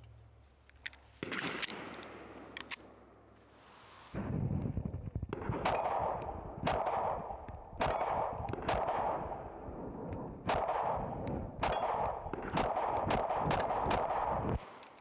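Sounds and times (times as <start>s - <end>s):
pistol shots with echo: 5.3s - 14.6s.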